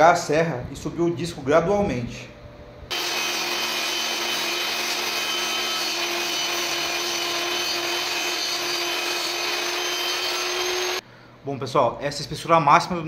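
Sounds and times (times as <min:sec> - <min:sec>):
table saw whining: 0:02.9 - 0:11.0.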